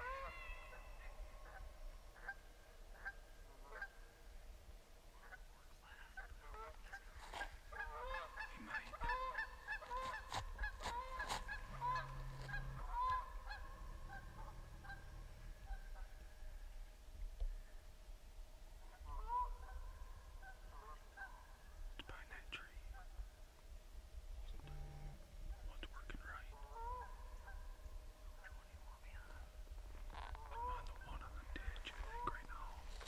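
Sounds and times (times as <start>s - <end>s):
pitched animal calls: 0.0s - 1.6s, 7.3s - 16.1s.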